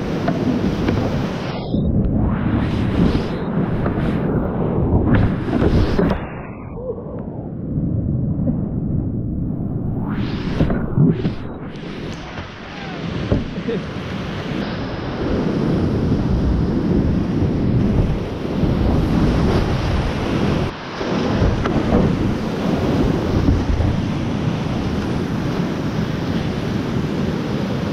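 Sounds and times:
wind hitting microphone: 0.0 - 27.9
whitewater rushing: 11.4 - 15.4.

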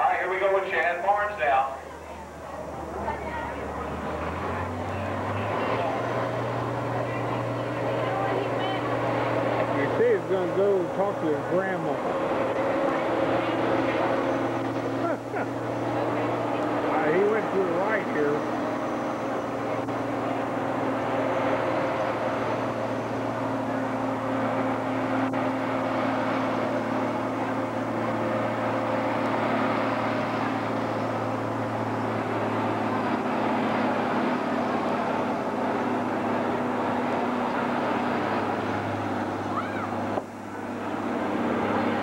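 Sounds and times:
tractor engine running under load: 0.0 - 42.0.

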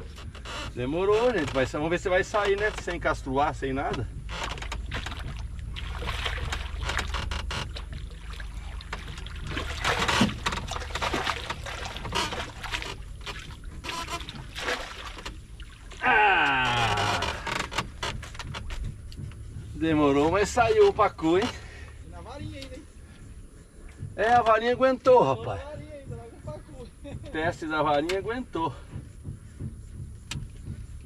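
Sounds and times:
steady low rumble: 0.0 - 31.0
knocks on canoe: 1.2 - 22.8, 23.8 - 31.0
water splashing: 3.6 - 27.6
person crying out: 16.0 - 17.5.

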